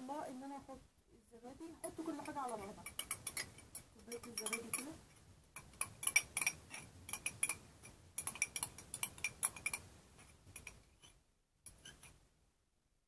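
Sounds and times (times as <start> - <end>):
spoon clinking against cup and bowl: 1.8 - 5.0, 5.6 - 9.9.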